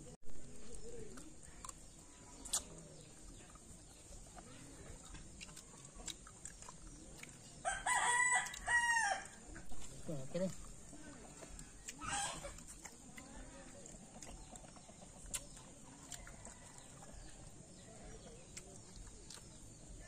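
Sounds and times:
rooster crowing: 0:07.6 - 0:09.4.

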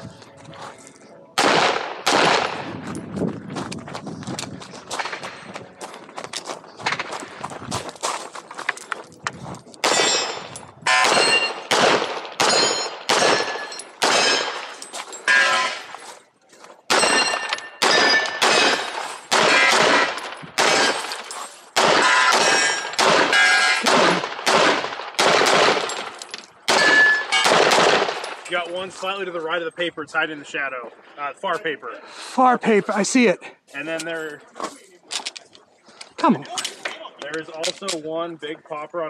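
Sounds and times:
handgun shots: 0:01.4 - 0:02.7, 0:09.8 - 0:14.7, 0:16.9 - 0:21.2, 0:21.8 - 0:28.4
metallic ring of steel targets: 0:09.8 - 0:11.7, 0:12.4 - 0:16.0, 0:16.9 - 0:23.9, 0:25.4 - 0:28.7.

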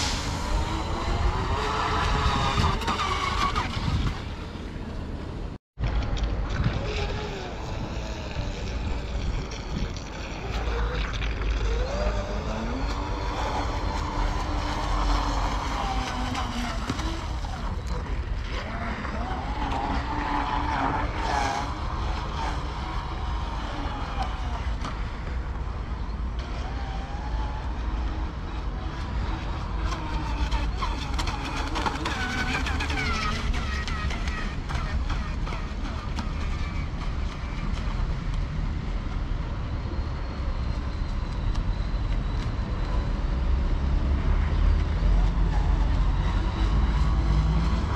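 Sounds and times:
wind rumble on microphone: 0:00.0 - 0:47.9
electric motor whining: 0:00.3 - 0:04.4, 0:06.7 - 0:37.9.

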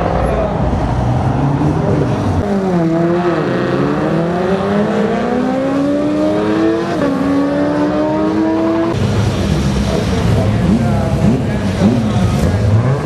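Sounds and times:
car engine accelerating hard: 0:00.0 - 0:13.0.

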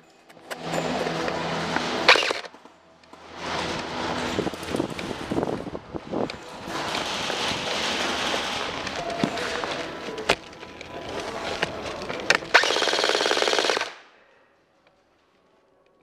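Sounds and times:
steady rushing noise: 0:00.6 - 0:13.6
full-auto airsoft burst: 0:02.1 - 0:02.5, 0:12.4 - 0:14.1
airsoft rifle shots: 0:12.4 - 0:14.1.

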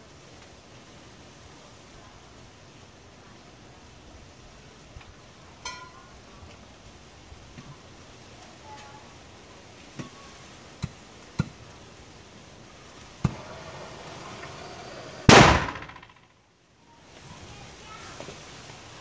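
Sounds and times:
faint steady hiss: 0:00.0 - 0:19.0
cannon firing loud bang: 0:15.3 - 0:16.2
sharp clicks: 0:15.3 - 0:16.2.

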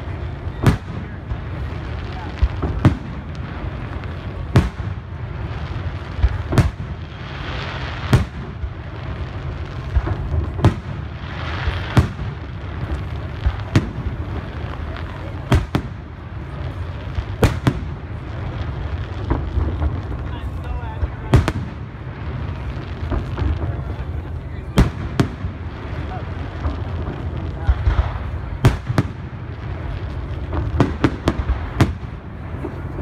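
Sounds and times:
firework bangs: 0:00.0 - 0:33.0.

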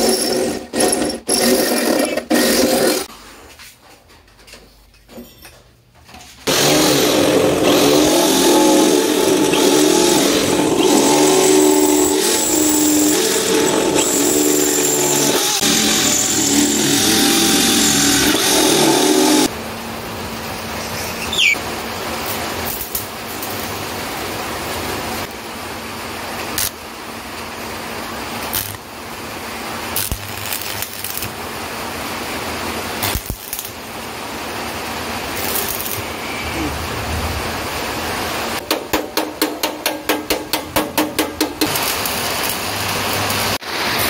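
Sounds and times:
electric drill boring metal: 0:06.5 - 0:19.5
arc welding crackling hiss: 0:22.2 - 0:23.8, 0:26.4 - 0:26.8, 0:27.6 - 0:38.6, 0:41.6 - 0:44.0.

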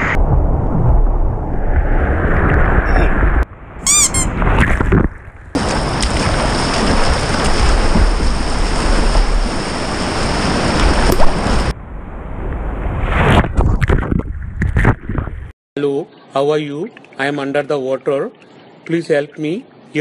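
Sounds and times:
whitewater rushing: 0:05.6 - 0:11.7.

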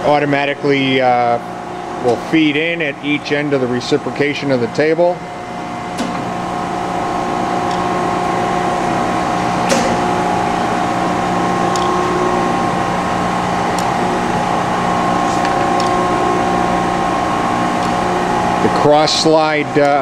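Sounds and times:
surface grinder humming: 0:06.4 - 0:18.9.

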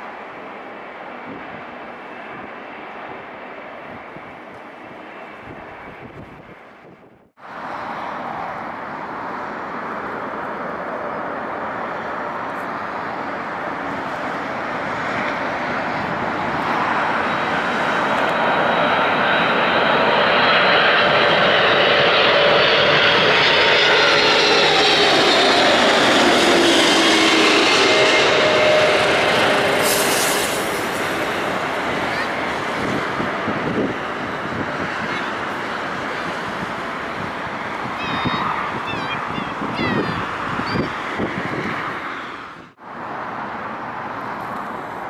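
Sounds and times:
jet airliner engines: 0:00.0 - 0:45.0
falling jet whine: 0:12.6 - 0:42.5.

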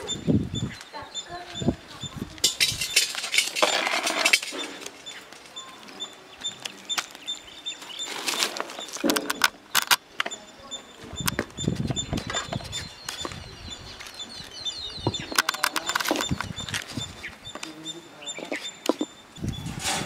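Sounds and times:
birds chirping: 0:00.0 - 0:20.0
clinks in metal vessel: 0:02.4 - 0:04.6
rough handling noise: 0:02.4 - 0:05.0.

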